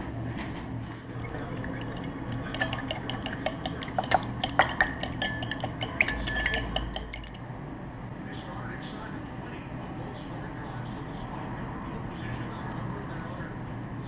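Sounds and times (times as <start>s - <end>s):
steady low hum: 0.0s - 14.0s
fork whisking clinking on bowl: 1.3s - 7.4s.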